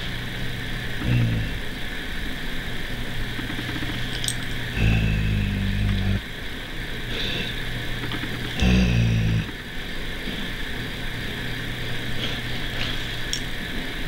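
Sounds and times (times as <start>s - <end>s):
dog growling low: 1.0s - 1.8s, 4.7s - 6.3s, 8.6s - 9.6s.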